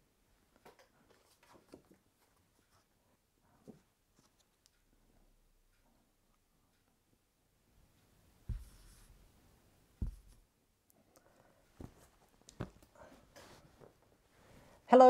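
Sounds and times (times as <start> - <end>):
marker scratching: 8.5 - 9.2
whiteboard knocks: 10.0 - 10.4.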